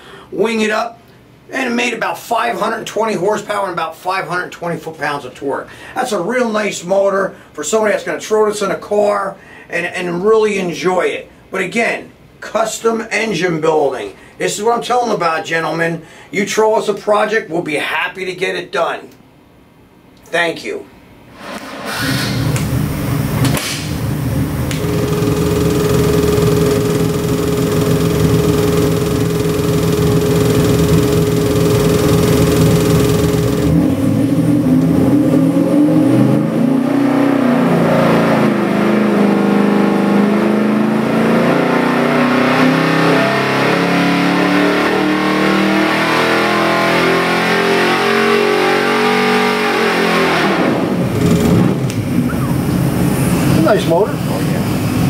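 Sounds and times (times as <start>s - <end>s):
steady tone: 24.0s - 34.2s
engine running and revving: 24.3s - 52.6s.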